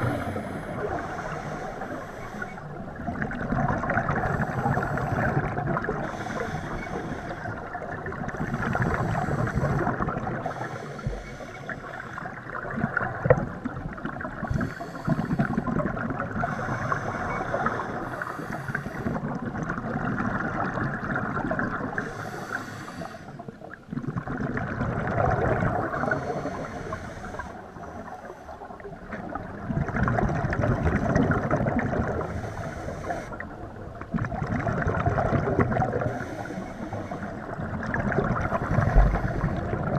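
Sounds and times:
regulator inhale hiss: 0.0s - 2.7s, 6.0s - 7.7s, 8.4s - 12.4s, 14.4s - 15.6s, 16.4s - 19.2s, 22.0s - 23.5s, 25.9s - 28.8s, 32.2s - 33.6s, 36.1s - 37.5s, 38.5s - 39.8s
exhaled bubbles gurgling: 0.0s - 39.9s.

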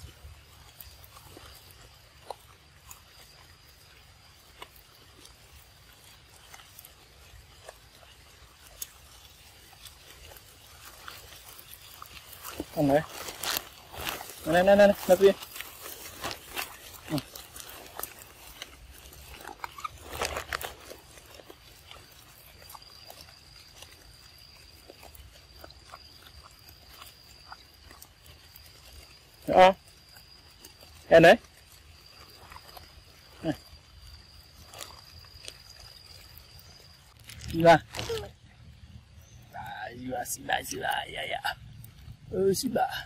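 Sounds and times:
monkey sucking through straw: 0.0s - 29.4s
small clicks and sucking: 15.2s - 29.3s.

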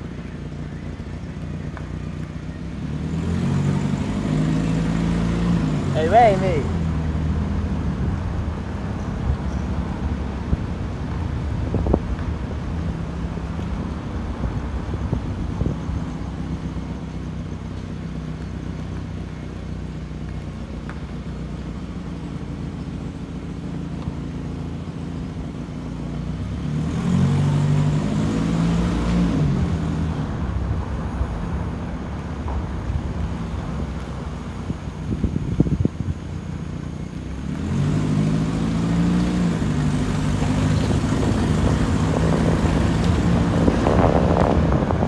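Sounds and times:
vehicle engine and road noise: 0.0s - 45.0s
engine revving: 2.7s - 7.6s, 26.4s - 30.3s, 37.3s - 45.0s.

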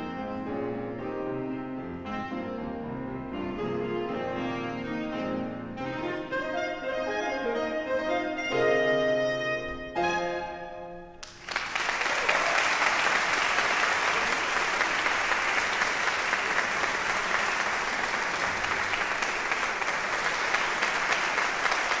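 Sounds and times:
clarinet and piano note: 0.0s - 11.2s
audience applause: 11.2s - 22.0s.

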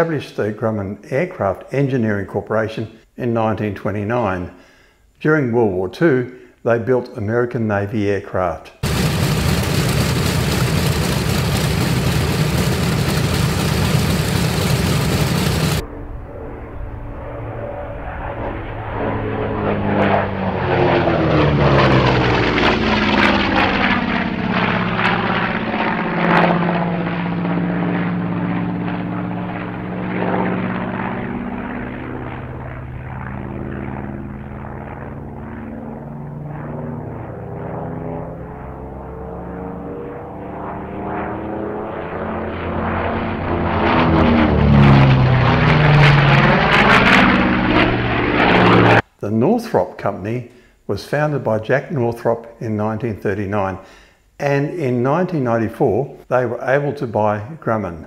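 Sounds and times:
propeller plane flying past: 8.8s - 49.0s.

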